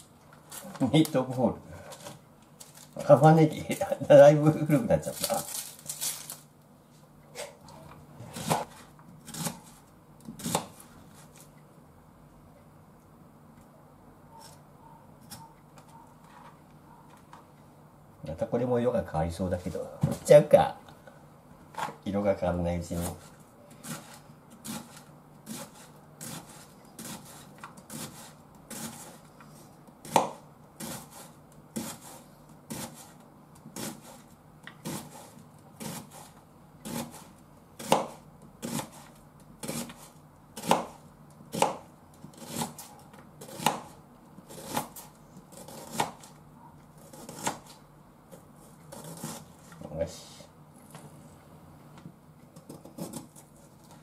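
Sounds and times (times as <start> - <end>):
knife slicing onion on board: 8.2 - 11.5, 14.3 - 16.0, 22.9 - 50.0, 52.6 - 54.0.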